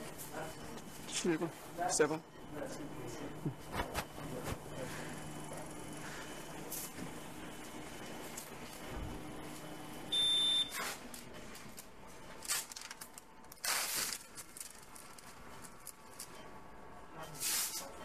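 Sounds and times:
high-pitched electronic beep: 10.1 - 10.7.

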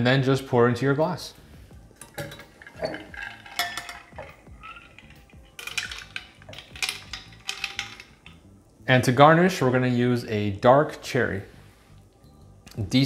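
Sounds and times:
ice clinking against glass: 2.0 - 8.4.

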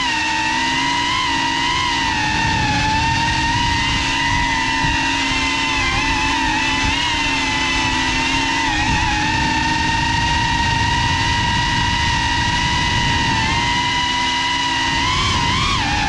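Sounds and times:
drone motors whining: 0.0 - 16.0
wind rumble on microphone: 0.0 - 16.0.

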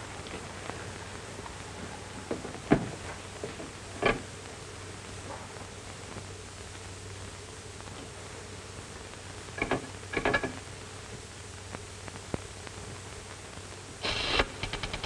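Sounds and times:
rapid clicking: 14.0 - 15.0.

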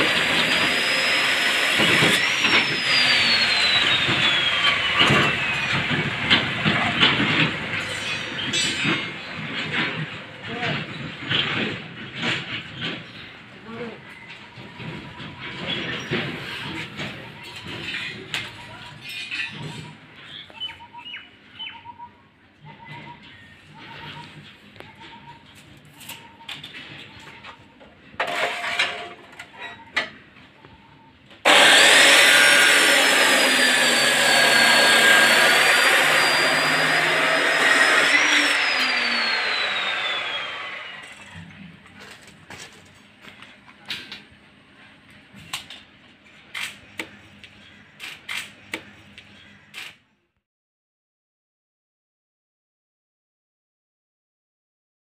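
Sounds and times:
electric power tool whining: 0.0 - 9.1, 31.4 - 42.7.

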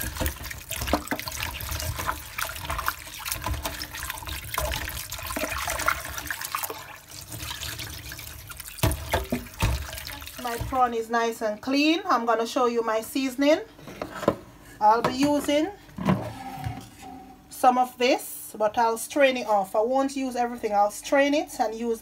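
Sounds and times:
hands splashing water: 0.0 - 10.8
tap water running into bowl: 0.0 - 10.8.

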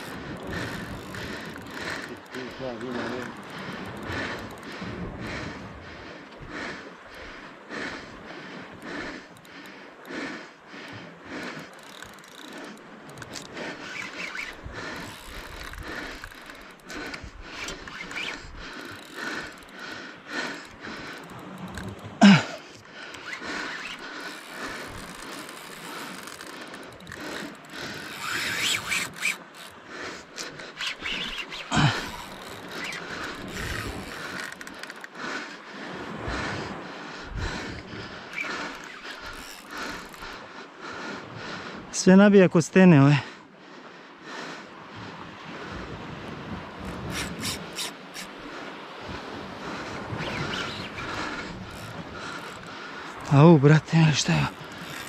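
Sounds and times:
fishing reel clicking scrape: 0.0 - 4.8, 11.4 - 19.9, 20.5 - 22.1, 22.7 - 35.2, 37.7 - 40.4, 46.8 - 48.4, 50.1 - 53.3, 54.2 - 55.0.

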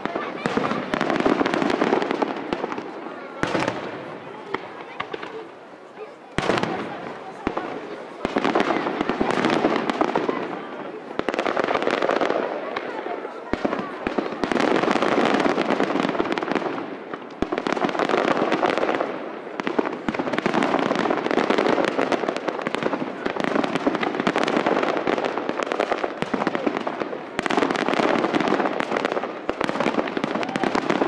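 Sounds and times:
fireworks crackling and popping: 0.0 - 31.0.

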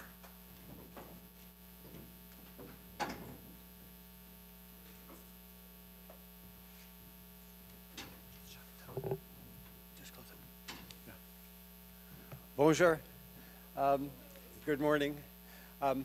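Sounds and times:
electrical mains hum: 0.0 - 16.0
faint knocks: 8.9 - 9.2.

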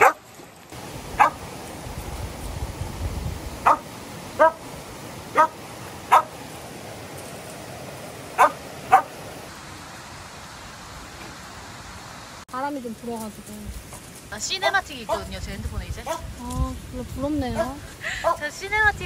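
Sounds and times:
dog barking: 0.0 - 0.2, 1.2 - 1.4, 3.6 - 4.6, 5.3 - 6.3, 8.4 - 9.2, 15.0 - 15.3, 16.0 - 16.3, 17.6 - 18.4
river rushing: 0.0 - 13.2.

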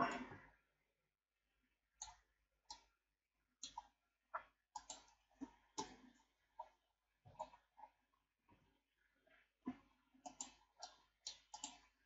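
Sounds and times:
mouse and keyboard clicking: 4.8 - 5.2, 10.3 - 11.9.

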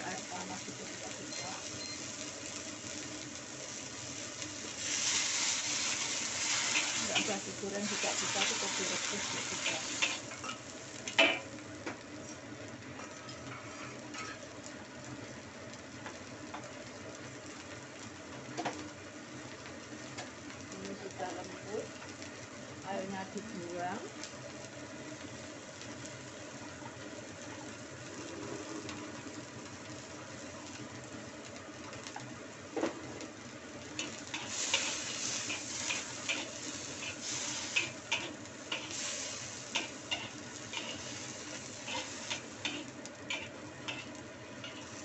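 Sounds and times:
vegetables sizzling in a wok: 0.0 - 45.0
metal spatula scraping a wok: 13.5 - 14.4, 39.7 - 45.0.

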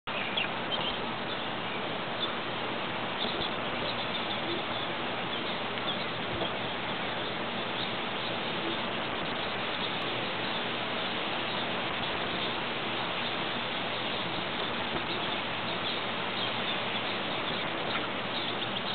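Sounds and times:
faint bird chirps: 0.1 - 2.4, 3.1 - 18.9
outdoor background hiss: 0.1 - 18.9.

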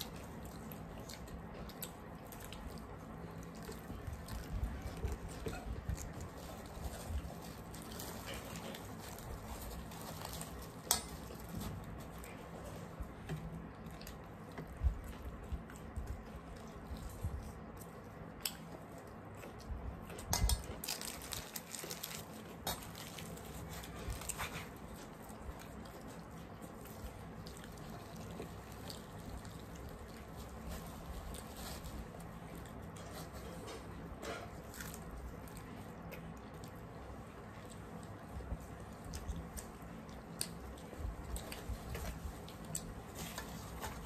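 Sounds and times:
chewing and mouth smacks: 0.0 - 21.5, 22.2 - 44.0
steady low hum: 0.0 - 44.0.

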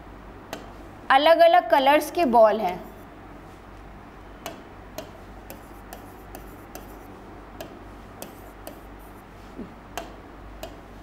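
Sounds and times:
stylus ticking on screen: 7.6 - 8.9.

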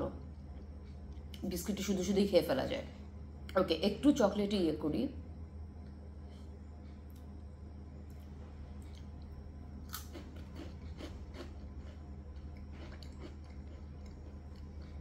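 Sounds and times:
biscuit crunching: 8.8 - 15.0.

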